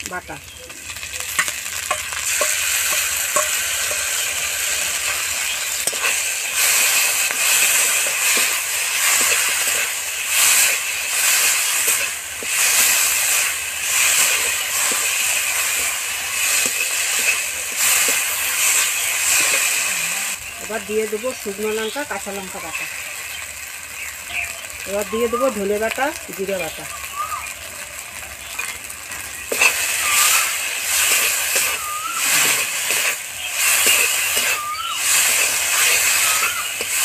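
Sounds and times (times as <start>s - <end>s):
food sizzling in oil: 0.0s - 37.0s
spatula scraping a pan: 1.2s - 19.9s, 29.4s - 37.0s.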